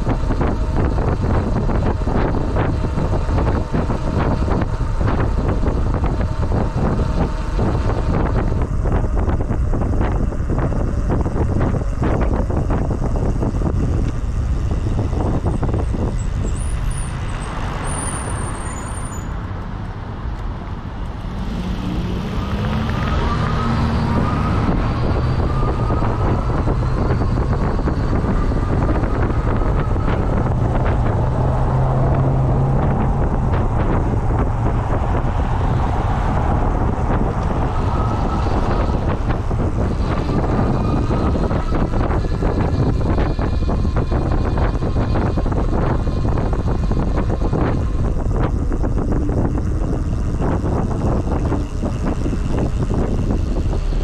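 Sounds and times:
road traffic passing: 0:00.0 - 0:54.0
wind buffeting microphone: 0:00.0 - 0:54.0
faint rising whine: 0:20.2 - 0:54.0.

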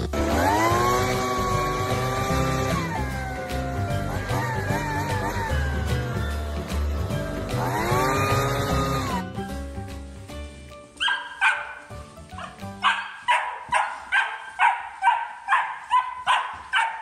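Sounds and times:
background music: 0:00.0 - 0:17.0
puppy barking: 0:11.0 - 0:11.8, 0:12.4 - 0:17.0.

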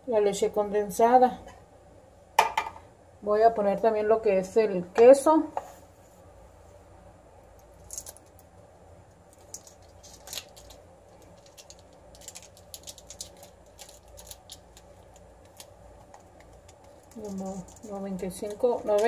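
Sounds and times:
foil wrapper crinkling: 0:07.6 - 0:08.5, 0:09.1 - 0:19.0.

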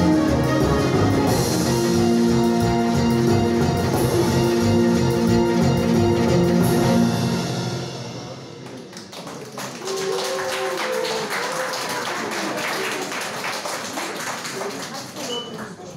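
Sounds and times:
audience applause: 0:08.6 - 0:15.4.

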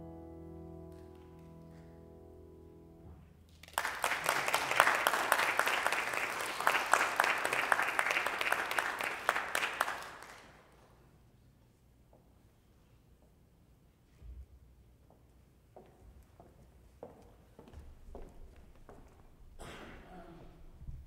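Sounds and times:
audience applause: 0:03.5 - 0:10.8.

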